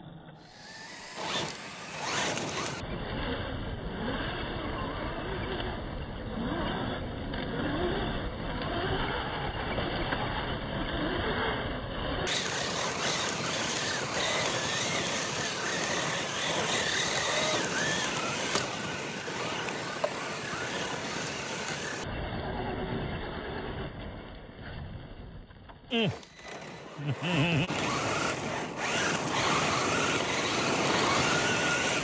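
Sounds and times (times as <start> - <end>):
electric motors whining: 0.3 - 3.1, 3.7 - 22.1, 25.9 - 32.0
tires crunching on gravel: 12.3 - 22.8, 26.1 - 32.0.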